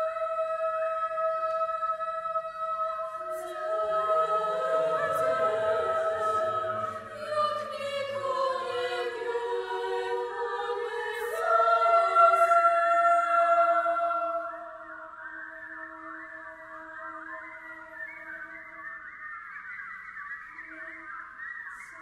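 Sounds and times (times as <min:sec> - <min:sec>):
mixed choir singing a cappella: 0:00.0 - 0:15.3.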